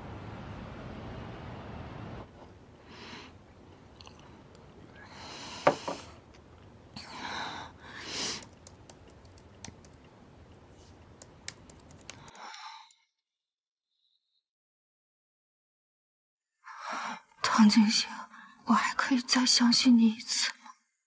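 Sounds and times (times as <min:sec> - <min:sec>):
typing on laptop keyboard: 0:08.4 - 0:10.1, 0:11.2 - 0:12.7.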